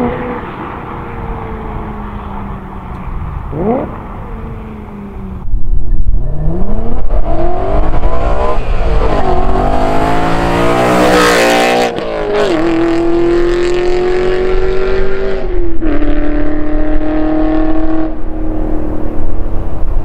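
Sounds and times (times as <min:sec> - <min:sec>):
car engine accelerating past: 0:06.4 - 0:19.2.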